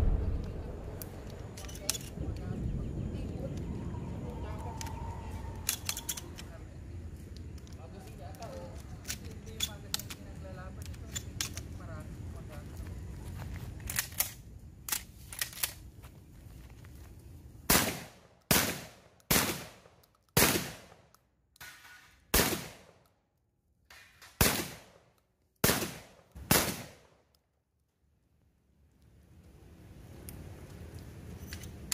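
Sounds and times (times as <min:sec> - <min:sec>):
shotgun shots echoing: 0:00.0 - 0:01.3, 0:17.7 - 0:21.0, 0:22.3 - 0:22.9, 0:24.3 - 0:25.0, 0:25.6 - 0:27.1
gun handling clicks: 0:00.4 - 0:02.2, 0:04.8 - 0:11.8, 0:13.8 - 0:15.9, 0:18.4 - 0:22.1, 0:30.2 - 0:31.9.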